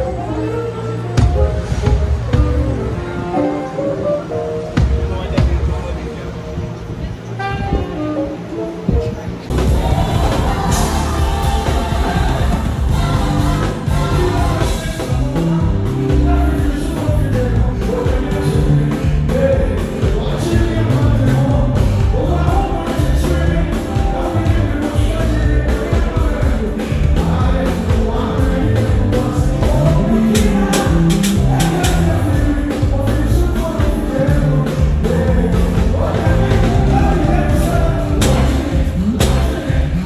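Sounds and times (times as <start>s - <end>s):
drums and cymbals: 0.0s - 3.6s, 4.6s - 6.0s, 8.9s - 40.0s
live band playing: 0.0s - 40.0s
person singing: 9.5s - 40.0s.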